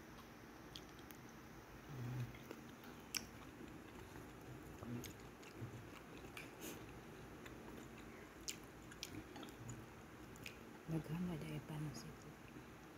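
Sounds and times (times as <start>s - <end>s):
soft chewing: 0.1s - 11.2s.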